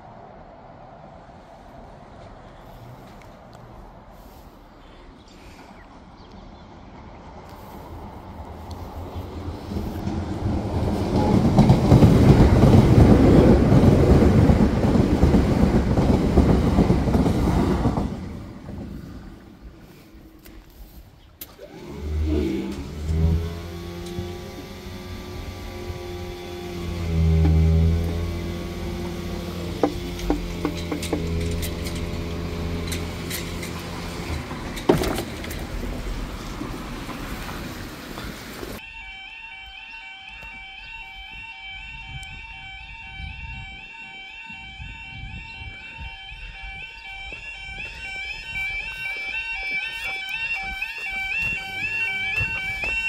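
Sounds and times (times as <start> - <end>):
traffic noise: 0.0 - 53.0
train wheels rumbling on rails: 6.7 - 20.4, 21.6 - 38.8, 47.2 - 53.0
level crossing warning alarm: 21.5 - 34.2, 38.8 - 53.0
car engine hum: 21.5 - 38.8.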